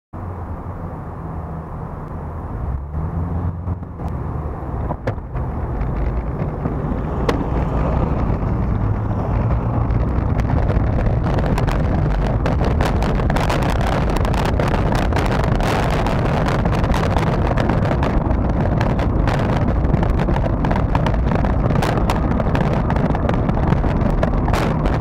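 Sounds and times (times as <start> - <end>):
car engines in traffic: 0.2 - 25.0
rushing noise of moving bicycle: 0.2 - 25.0
sharp clicks and knocks: 4.8 - 25.0.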